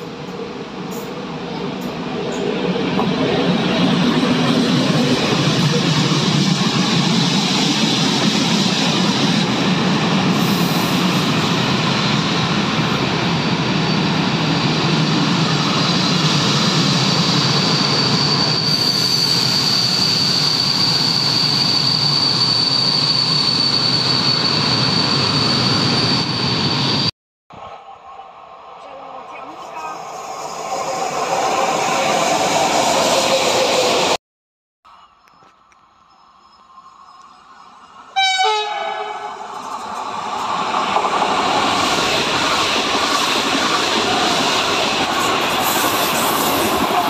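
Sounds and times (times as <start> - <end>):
high-pitched wheel squeal: 16.9 - 27.1
freight train wheels rumbling: 36.4 - 47.0.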